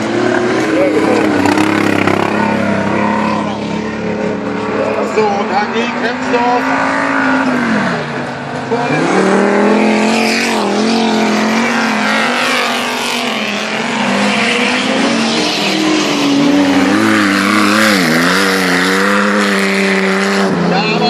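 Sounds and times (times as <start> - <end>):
race car engines passing: 0.0 - 21.0.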